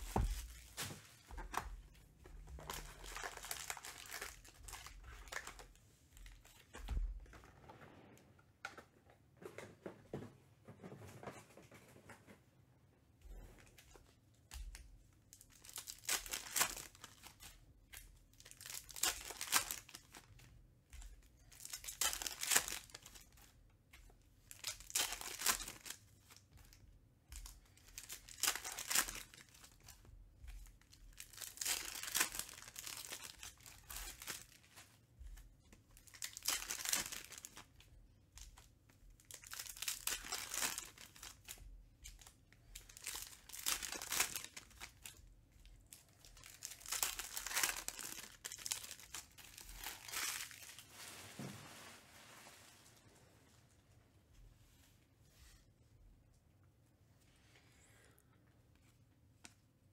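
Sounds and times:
foil wrappers tearing and crinkling: 2.7 - 5.6, 15.5 - 17.4, 18.4 - 20.2, 21.5 - 23.3, 24.5 - 26.0, 27.9 - 29.8, 31.1 - 34.6, 36.0 - 37.7, 39.2 - 45.1, 46.2 - 50.9.

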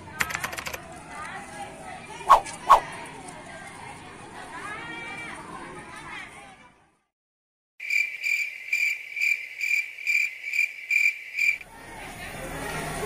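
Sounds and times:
cricket chirping: 7.8 - 11.6.

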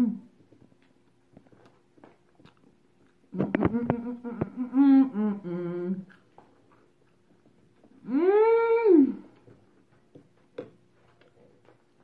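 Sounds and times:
woman humming: 0.0 - 0.3, 3.4 - 6.2, 8.0 - 9.4
chewing clicks: 0.8 - 3.6.

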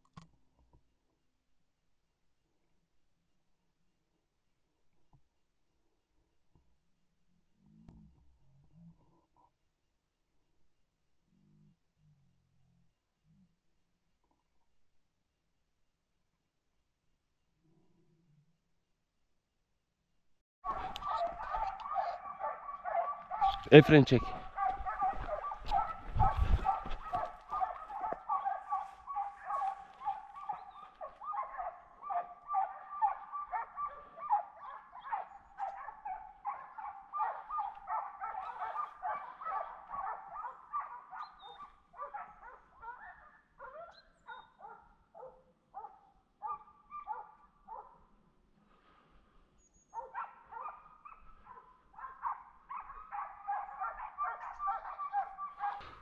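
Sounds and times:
dogs barking: 20.7 - 48.0, 49.9 - 56.0.

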